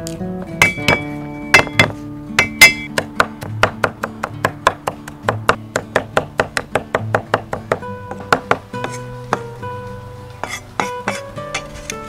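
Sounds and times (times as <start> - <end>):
plucked-string music: 0.0 - 12.0
cleaver chopping on wooden board: 0.6 - 9.4, 10.4 - 11.7.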